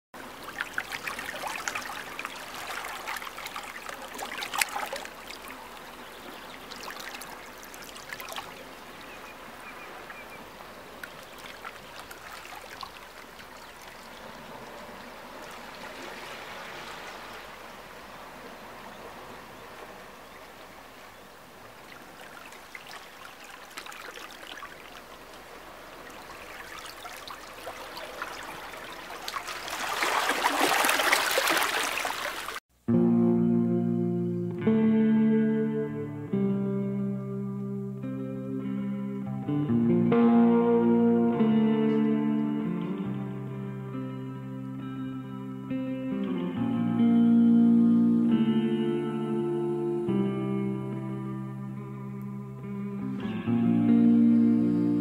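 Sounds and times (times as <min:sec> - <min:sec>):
water splash: 0:00.2 - 0:20.6, 0:21.6 - 0:32.6
water lapping among rocks: 0:00.2 - 0:32.6.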